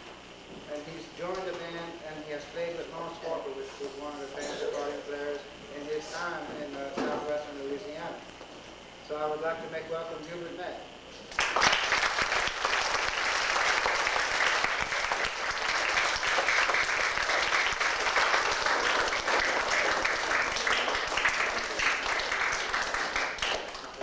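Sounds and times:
children applauding: 11.3s - 24.0s.

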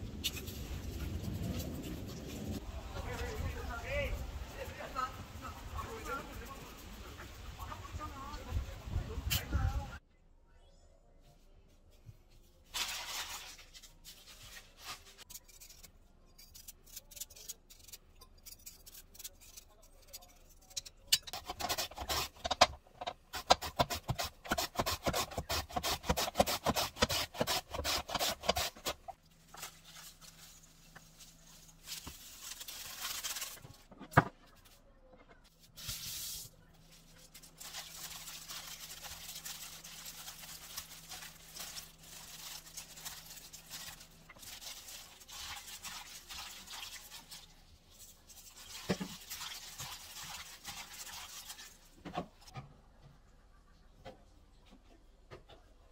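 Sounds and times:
radish strips rustling: 11.9s - 52.0s
plastic bags crinkling: 12.7s - 15.3s, 28.6s - 33.9s, 35.6s - 47.5s.

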